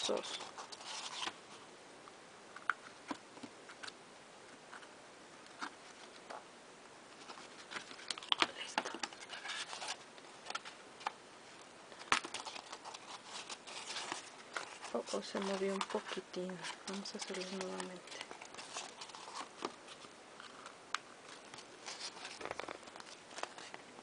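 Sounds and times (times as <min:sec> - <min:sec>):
paper rustling: 0:00.0 - 0:01.6, 0:07.2 - 0:11.2, 0:11.9 - 0:23.8.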